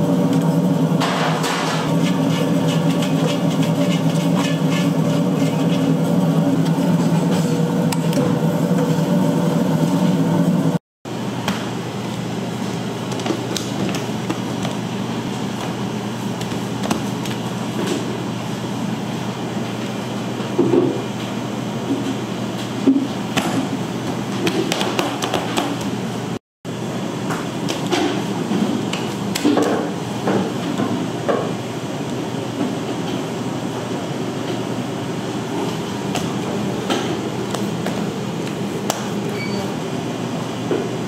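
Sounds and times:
machine hum: 0:00.0 - 0:20.4.

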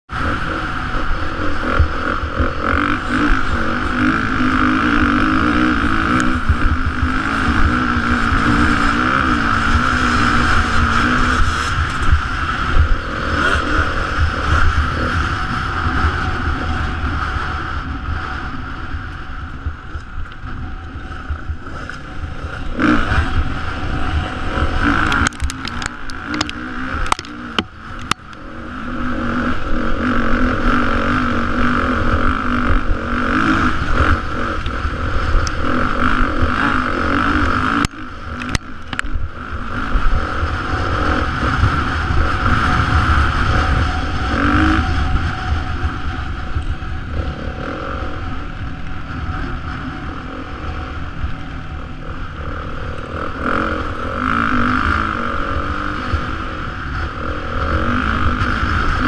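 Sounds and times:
dirt bike engine running hard: 0:00.0 - 0:59.0
wind noise on microphone: 0:00.1 - 0:59.0
sharp clicks: 0:25.0 - 0:28.4.

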